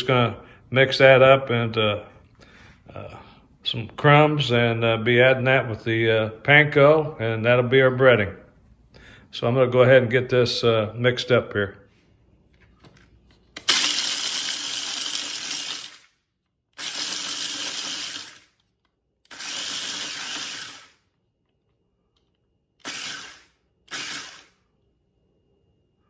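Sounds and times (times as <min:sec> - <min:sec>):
food processor grinding: 0:13.6 - 0:16.1, 0:16.7 - 0:18.6, 0:19.2 - 0:21.0, 0:22.8 - 0:24.6.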